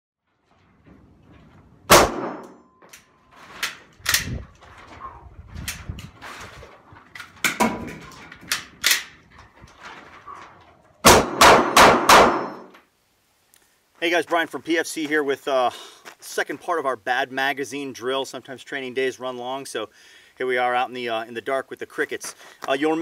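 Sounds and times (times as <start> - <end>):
pistol metallic clacks: 7.2 - 9.2.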